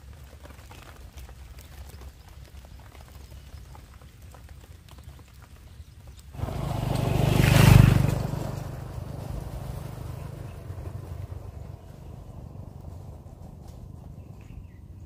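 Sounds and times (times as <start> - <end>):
motorcycle riding past: 6.4 - 15.0.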